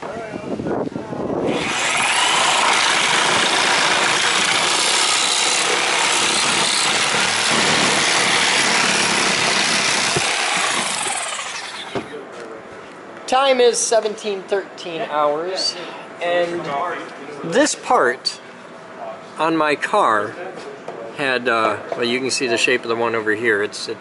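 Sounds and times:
reciprocating saw cutting: 1.5 - 12.2.

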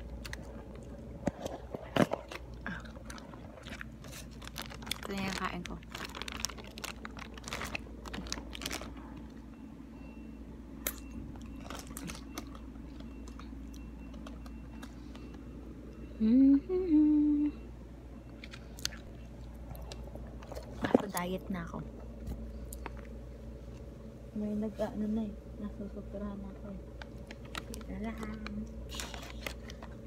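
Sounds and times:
plastic bags rustling and crinkling: 1.3 - 9.4, 27.0 - 30.0
person humming rising pitch: 16.2 - 17.7.

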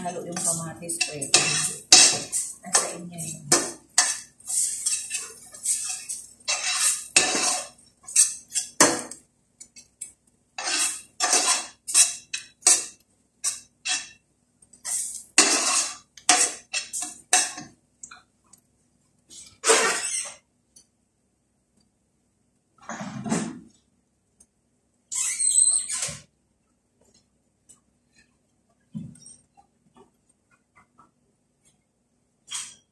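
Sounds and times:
metal spoon scraping frying pan: 0.0 - 9.9, 10.6 - 14.2, 14.8 - 17.7, 19.3 - 20.4.

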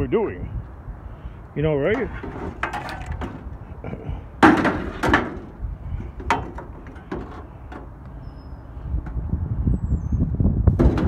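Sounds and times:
debris knocking and clattering: 1.9 - 3.6, 4.4 - 7.9.

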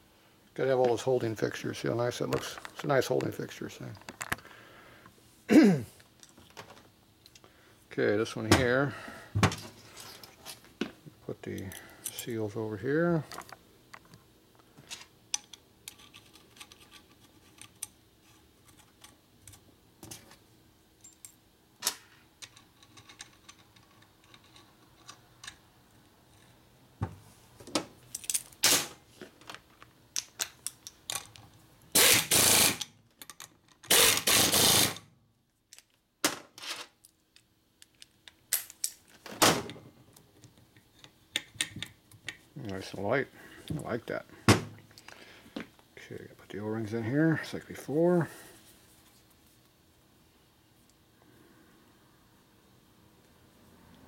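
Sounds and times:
air tool bursts: 31.9 - 32.9, 33.9 - 35.0.

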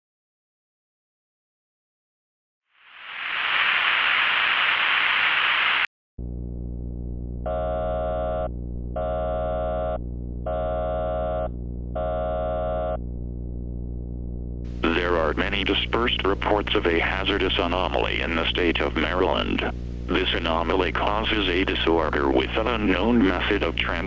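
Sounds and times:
television static hiss: 3.0 - 5.9, 14.7 - 24.0
low electronic buzzing drone: 6.2 - 24.0.

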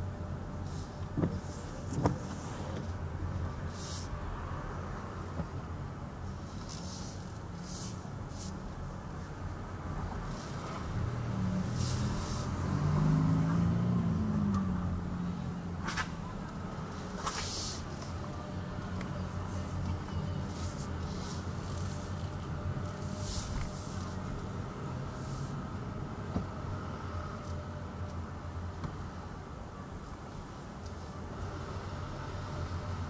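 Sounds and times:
car engine and road rumble: 0.0 - 33.0
passing traffic hiss: 10.2 - 14.5, 16.8 - 18.3, 22.9 - 25.8.

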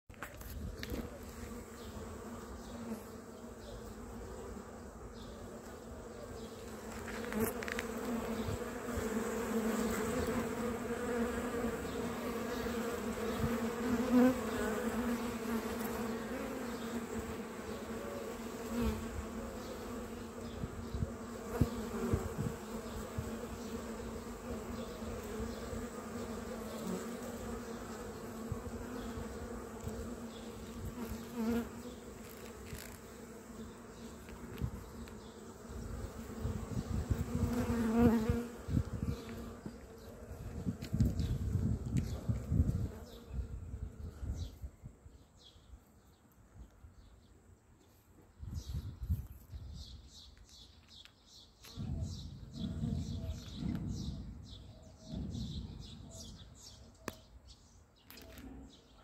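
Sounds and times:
bees buzzing: 0.8 - 43.8.

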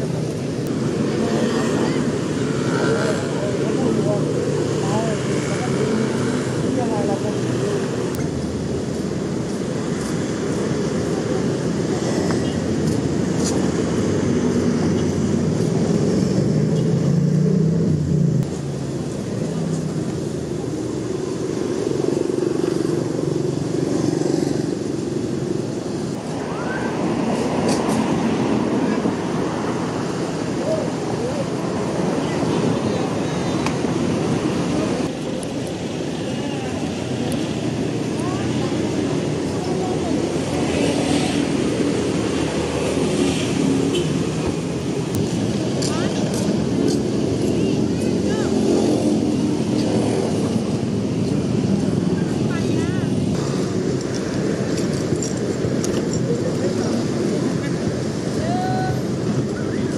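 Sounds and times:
chatter of people: 0.0 - 8.5, 26.2 - 59.9
rumble of passing vehicles: 0.0 - 59.9.

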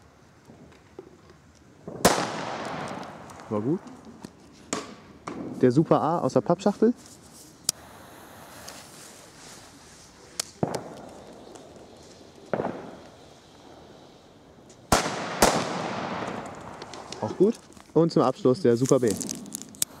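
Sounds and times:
faint bangs: 1.8 - 6.0, 10.3 - 14.0, 14.6 - 18.0
firecracker bang with echo: 1.9 - 3.9, 10.6 - 11.7, 12.5 - 14.0, 14.9 - 17.2.

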